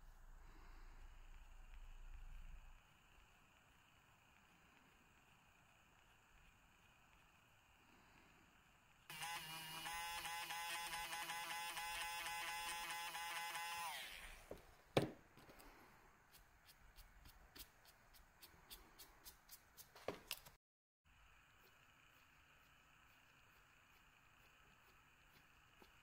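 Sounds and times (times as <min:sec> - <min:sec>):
small electric motor buzzing: 0:01.3 - 0:14.6, 0:21.2 - 0:26.0.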